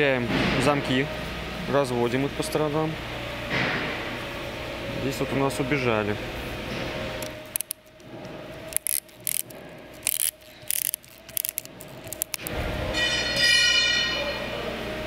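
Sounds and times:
metal tool clicks and rattles: 7.2 - 8.1, 8.7 - 12.5
metallic ringing: 12.4 - 15.0.

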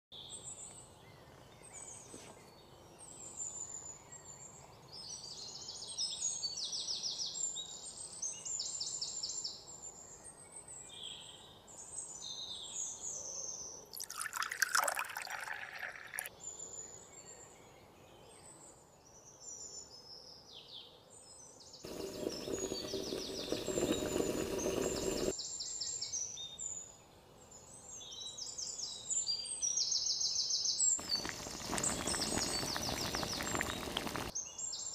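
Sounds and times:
water pouring into metal pot: 14.0 - 16.3, 21.9 - 25.3, 31.0 - 34.3
small birds chirping: 21.4 - 26.6, 27.6 - 34.9.

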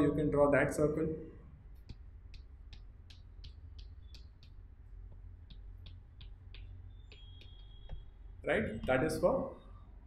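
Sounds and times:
chalk tapping on chalkboard: 1.8 - 9.0.

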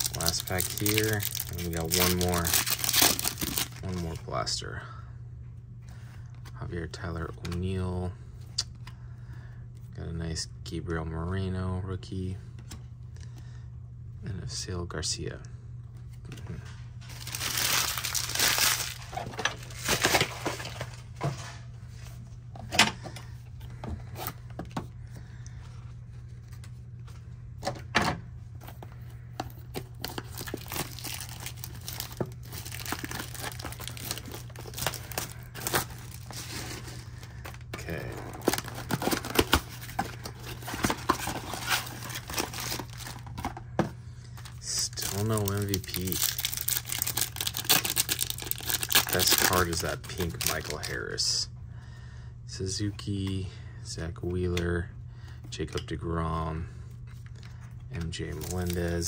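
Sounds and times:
plastic wrapping crinkling and tearing: 0.0 - 4.2, 17.0 - 20.9, 29.8 - 43.3, 44.4 - 51.2, 58.3 - 59.0.

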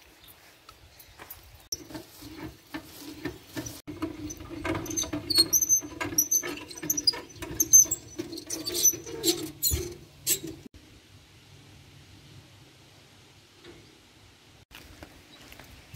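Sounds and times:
crank jack squeaking and clicking: 1.7 - 10.7.

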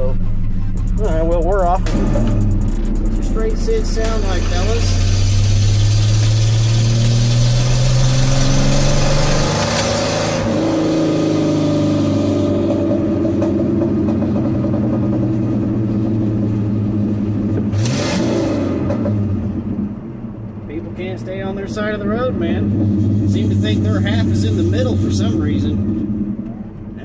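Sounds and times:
rushing noise: 0.0 - 11.4
truck engine accelerating: 0.0 - 27.0.

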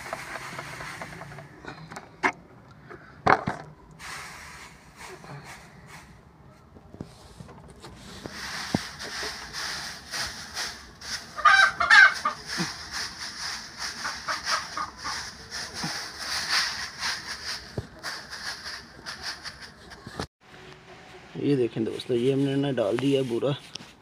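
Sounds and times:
hand rustling sawdust bedding: 0.0 - 1.5, 4.0 - 6.1, 7.1 - 20.2, 21.4 - 24.0
chicken clucking: 11.4 - 12.9, 13.8 - 15.6.

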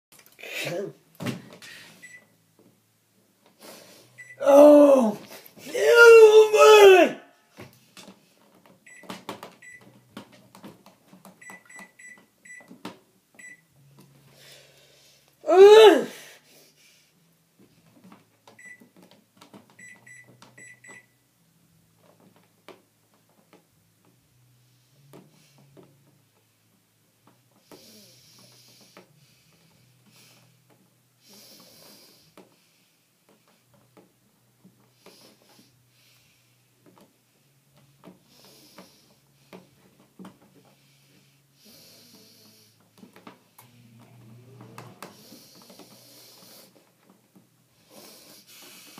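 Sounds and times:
microwave keypad beeps: 11.4 - 12.7, 13.4 - 13.7, 19.8 - 21.1
person breathing close to microphone: 14.3 - 15.3, 40.6 - 42.8.

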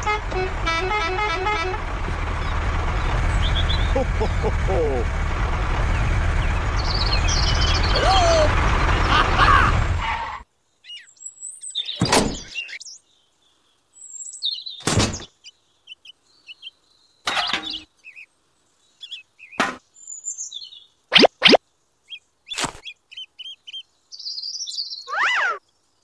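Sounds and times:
loud vehicle-like noise: 0.0 - 10.4
bird chirps: 2.4 - 4.5, 5.9 - 8.1, 10.8 - 26.0.

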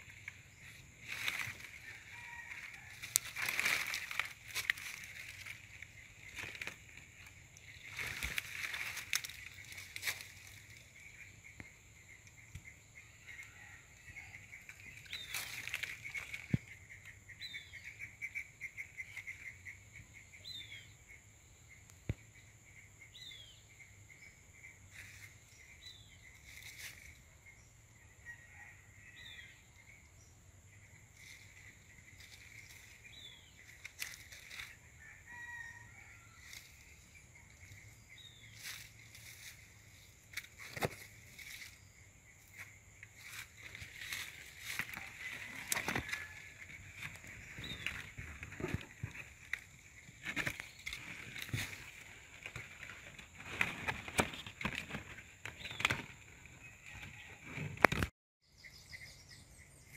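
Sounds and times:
clicks and rustles among leaves: 0.0 - 11.3, 13.3 - 17.7, 24.9 - 27.2, 31.1 - 58.1.

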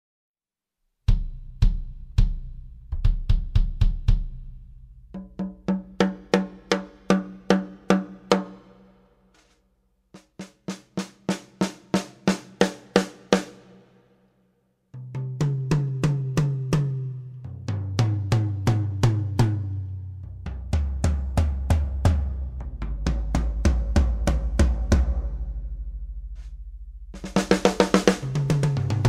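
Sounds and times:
bright sharp drum strokes: 5.2 - 9.6, 10.2 - 14.0, 20.5 - 29.0.

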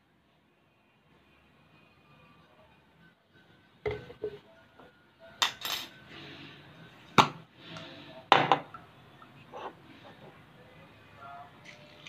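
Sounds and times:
bottles knocking on tabletop: 3.9 - 4.4.

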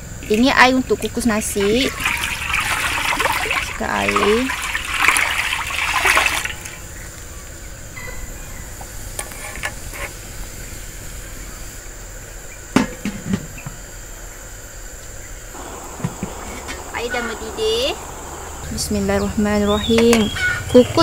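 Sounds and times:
high insect drone: 0.0 - 21.0
water pouring into metal pan: 1.6 - 6.8.

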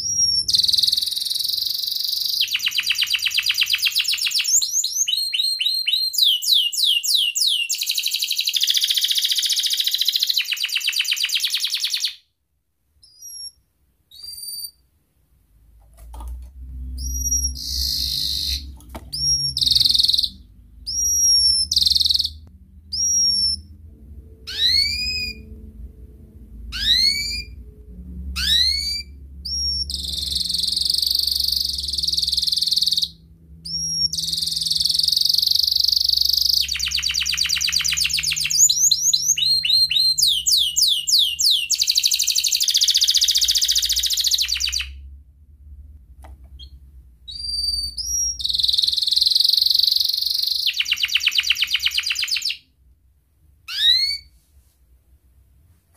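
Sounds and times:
canary singing trills: 0.0 - 12.2, 13.0 - 14.8, 16.8 - 25.8, 26.6 - 27.7, 28.3 - 45.1, 46.6 - 52.7, 53.7 - 54.3
low hum: 14.9 - 40.2, 44.9 - 48.4.

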